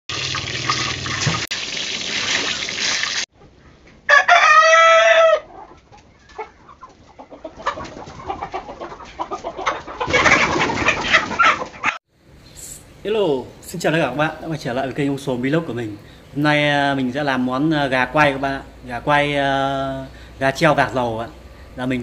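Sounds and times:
hot oil sizzling: 0.1 - 3.3
chickens squawking and flapping: 2.2 - 12.0
chickens clucking: 3.4 - 12.0, 18.0 - 18.7
rooster crowing: 4.1 - 5.6.

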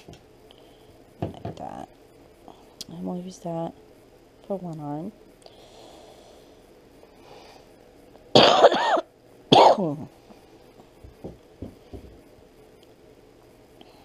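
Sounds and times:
person coughing: 8.4 - 10.0.

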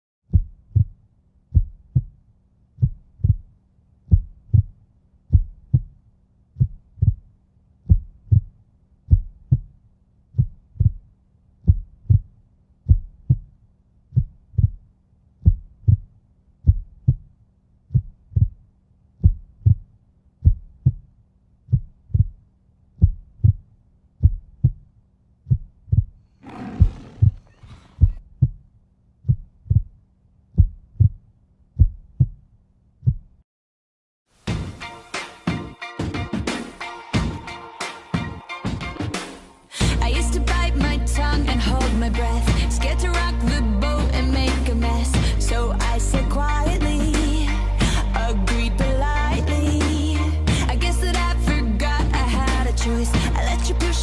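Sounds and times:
heartbeat thumps: 0.3 - 2.2, 2.8 - 3.5, 4.1 - 6.0, 6.6 - 17.3, 17.9 - 18.6, 19.2 - 21.1, 21.7 - 22.4, 23.0 - 23.6, 24.2 - 28.6, 29.2 - 30.0, 30.6 - 31.2, 31.8 - 33.4.

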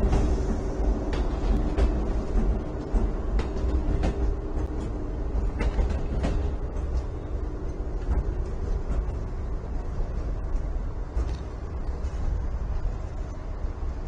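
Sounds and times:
clicks of train on tracks: 0.0 - 14.0
train rumbling past: 0.0 - 14.0.

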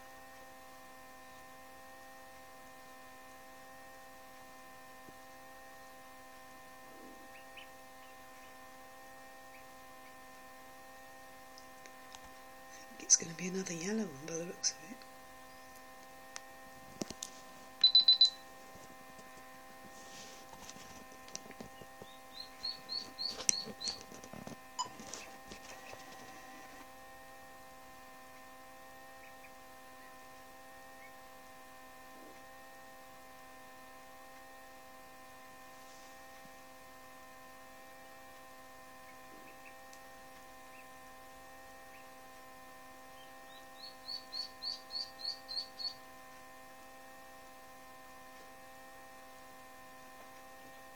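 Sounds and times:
steady electrical hum: 0.0 - 50.9
sharp high pulsing tone: 17.8 - 18.5
duckling peeping: 21.7 - 24.1, 43.2 - 46.0.

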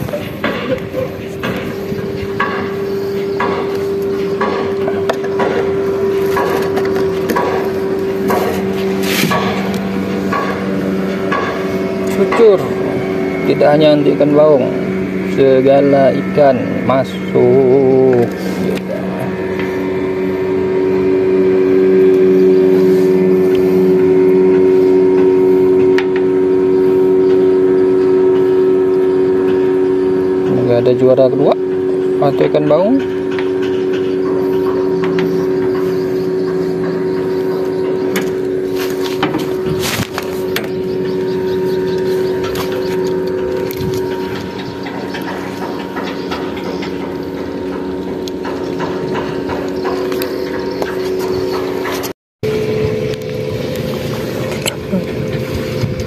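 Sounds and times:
large engine droning: 0.0 - 56.0
steady hum: 0.0 - 56.0.

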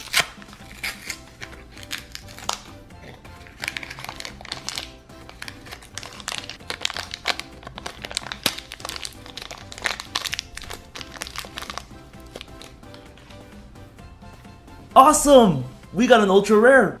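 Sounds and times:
plastic wrapper crinkling: 0.0 - 13.3
background music: 0.0 - 17.0.

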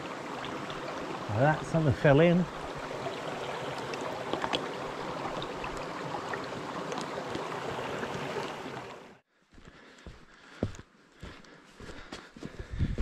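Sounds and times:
stream running over rocks: 0.0 - 9.2
footsteps on track: 9.5 - 13.0.

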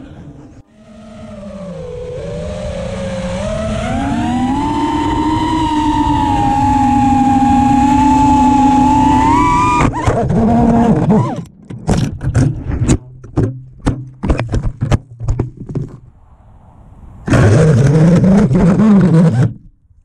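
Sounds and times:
quadcopter motor whine: 0.7 - 11.4
drone knocking against branches: 11.6 - 16.1.

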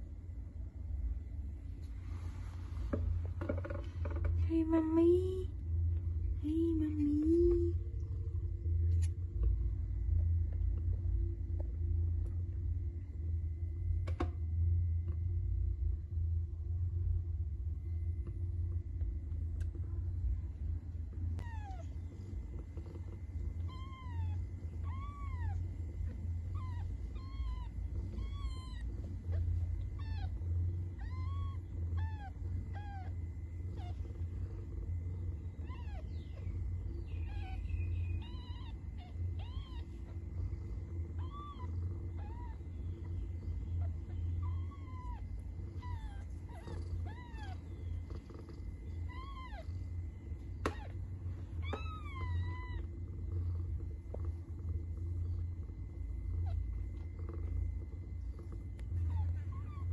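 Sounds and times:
steady low rumble: 0.0 - 59.9
kittens mewing: 37.2 - 40.2, 43.8 - 48.1.

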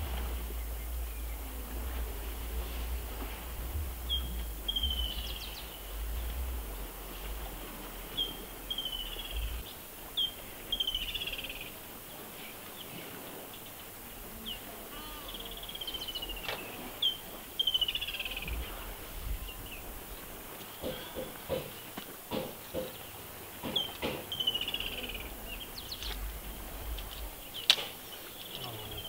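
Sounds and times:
low rumble: 0.0 - 11.9, 18.3 - 20.5, 24.7 - 27.6.

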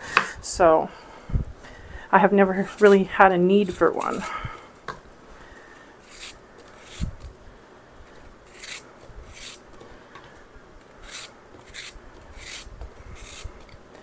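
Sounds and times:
knife cutting raw apple: 3.6 - 4.4, 6.0 - 7.2, 8.5 - 9.6, 10.8 - 13.8.

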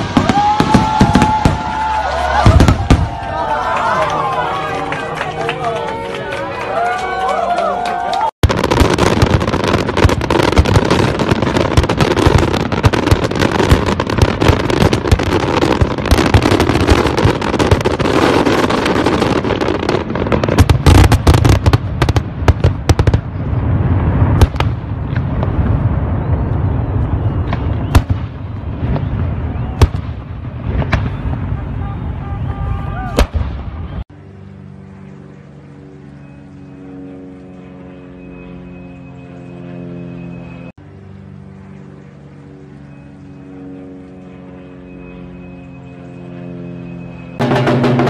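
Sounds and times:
fireworks booms and bangs: 0.0 - 3.3, 8.4 - 31.9, 33.0 - 34.0, 47.4 - 48.0
fireworks crackling: 0.0 - 5.9, 8.4 - 33.8, 47.4 - 48.0.

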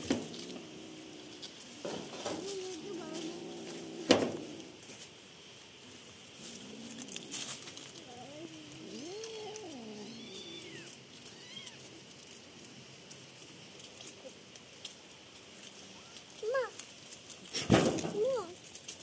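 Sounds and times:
kitten growling and yowling: 0.0 - 4.8, 6.4 - 11.9.

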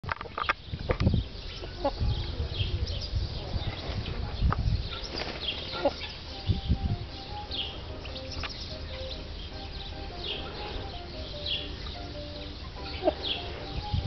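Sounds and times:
chickens chirping: 0.3 - 14.0
soft low chicken calls: 1.2 - 7.3.

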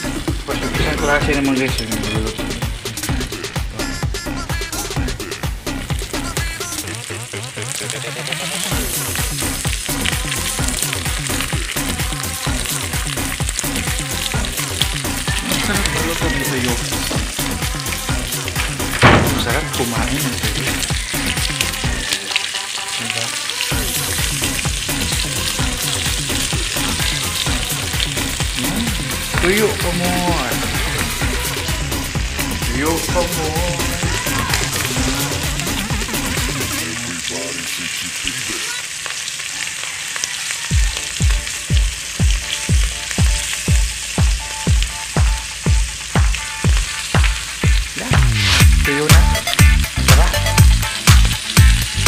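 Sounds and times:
electronic music beat: 0.0 - 7.0, 23.7 - 36.8, 40.7 - 52.0
fish frying in hot oil: 0.0 - 52.0
kick drum thumps: 19.0 - 19.8, 40.7 - 51.8.

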